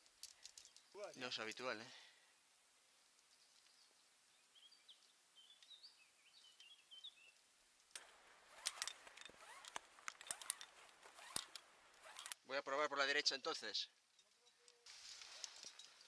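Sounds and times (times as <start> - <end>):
faint bird chirps: 3.2 - 7.4.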